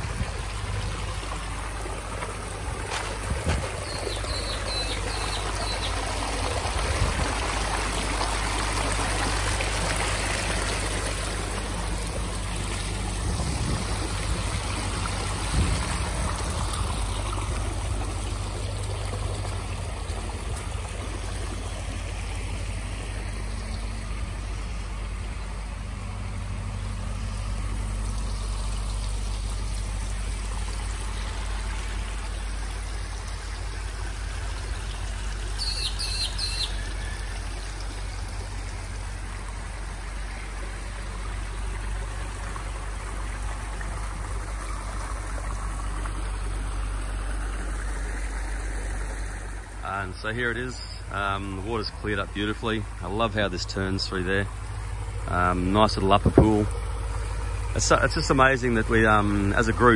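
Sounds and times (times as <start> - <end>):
steady low rumble: 0.0 - 35.6
water trickling over rocks: 0.0 - 59.9.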